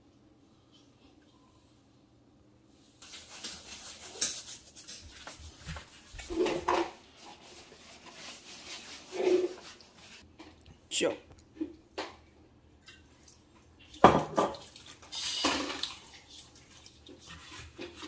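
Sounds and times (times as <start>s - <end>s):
hands scrubbing salt into skin: 7.1s - 10.2s.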